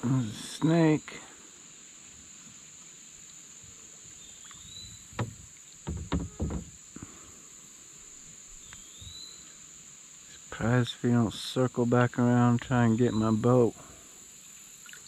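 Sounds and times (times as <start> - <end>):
insects droning: 0.0 - 15.0
knocks on plastic kayak hull: 5.1 - 6.7.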